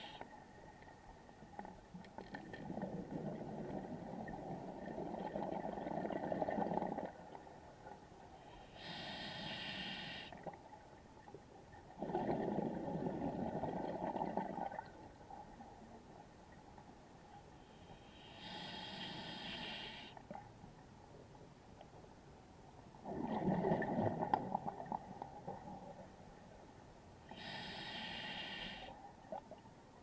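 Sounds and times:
regulator inhale hiss: 0.0 - 0.2, 8.4 - 10.4, 17.6 - 20.2, 27.3 - 29.0.

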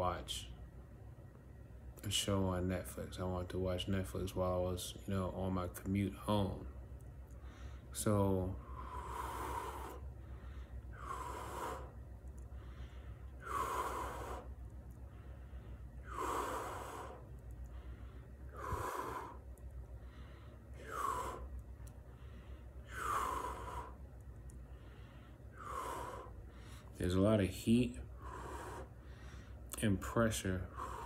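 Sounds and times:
steady low hum: 0.0 - 31.0
man breathing heavily: 7.3 - 31.0.

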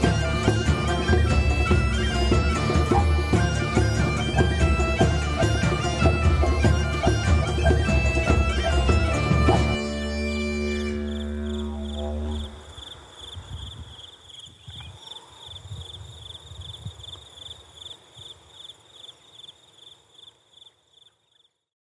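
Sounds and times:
crickets chirping: 9.5 - 21.7
wind rumble: 11.2 - 17.2.

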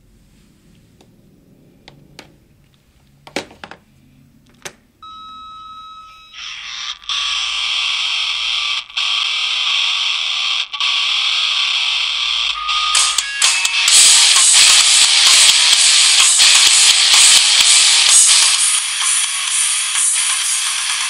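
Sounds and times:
steady high ringing tone: 5.0 - 8.7.

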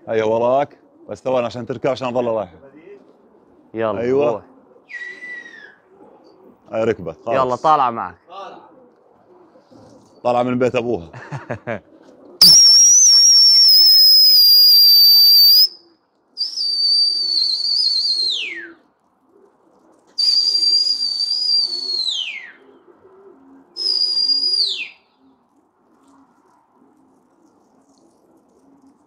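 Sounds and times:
pigeons cooing: 2.9 - 7.7, 8.5 - 10.2, 11.6 - 12.4, 18.4 - 20.2, 21.7 - 29.0
loud high whistle blasts: 12.4 - 15.7.

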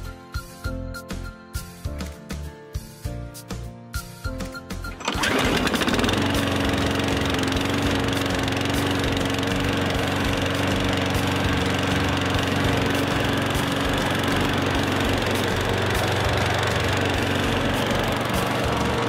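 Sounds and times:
ride-on lawn mower engine running: 4.9 - 19.0.

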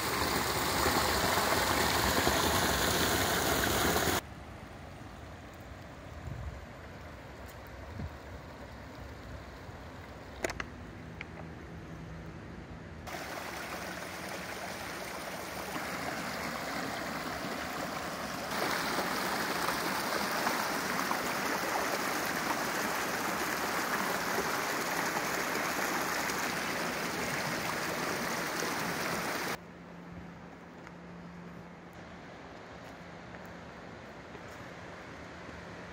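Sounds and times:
brook splashing over stones: 0.0 - 4.2, 13.1 - 29.6.

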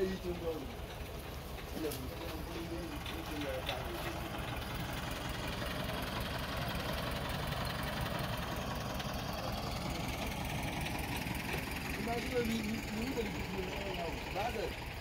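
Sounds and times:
tractor diesel engine chugging: 0.0 - 15.0.

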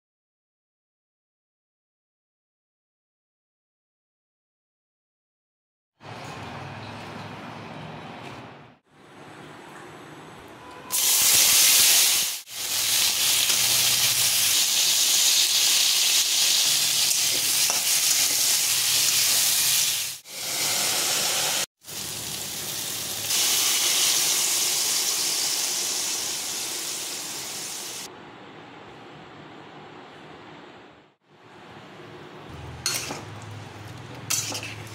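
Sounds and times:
vegetables sizzling in hot oil: 10.9 - 28.1
water hissing in hot pan: 11.0 - 28.1.

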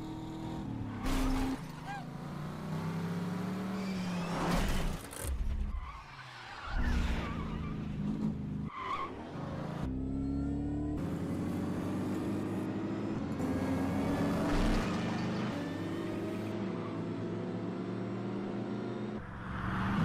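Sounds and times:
tyres skidding and squealing: 0.6 - 11.5, 13.2 - 17.5
car engines revving: 6.6 - 20.0.

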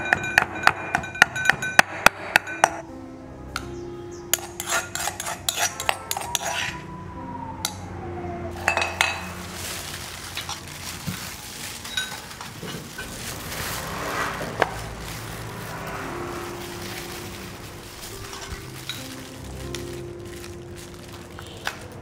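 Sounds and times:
metal bowls clinking and scraping: 4.4 - 6.8, 8.6 - 20.2.

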